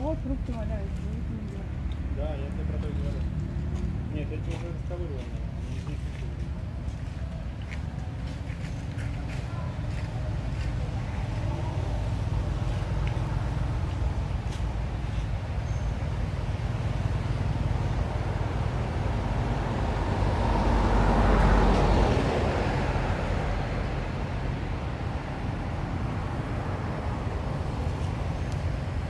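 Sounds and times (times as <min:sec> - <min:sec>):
low rumble of road traffic: 0:00.0 - 0:29.0
vehicle passing by: 0:00.0 - 0:29.0.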